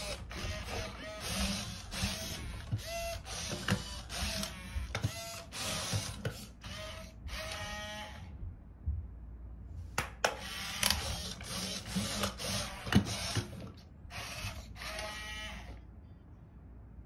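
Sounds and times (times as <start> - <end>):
robot dog motors whirring and clicking: 0.0 - 8.2, 10.5 - 15.7.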